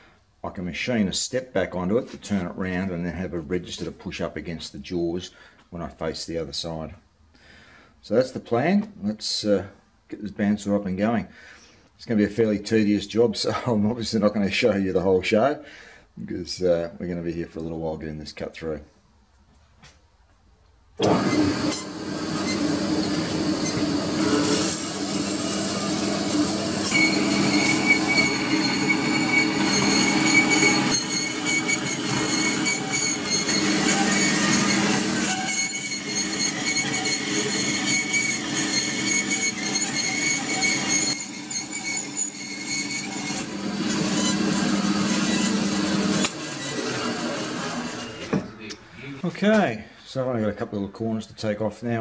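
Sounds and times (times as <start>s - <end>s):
bandsaw running hum: 21.0s - 48.4s
saw blade squealing in steel: 26.7s - 45.7s.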